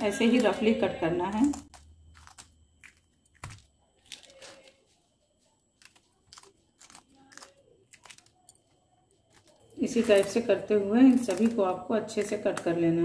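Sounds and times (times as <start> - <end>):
scissors snipping chillies: 5.8 - 13.0.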